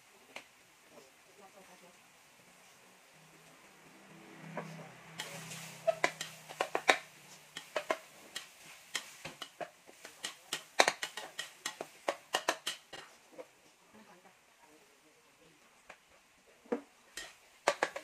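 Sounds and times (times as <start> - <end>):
metal spatula scraping a wok: 4.5 - 13.2.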